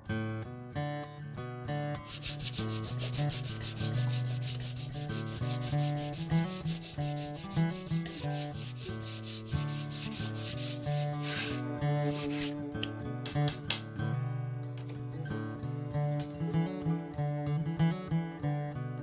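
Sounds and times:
guitar music: 0.0s - 19.0s
sanding block scraping rod: 2.0s - 12.6s.

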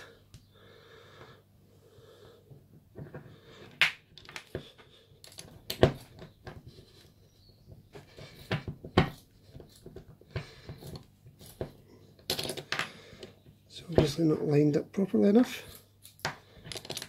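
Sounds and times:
small steel parts clicking: 15.7s - 17.0s.

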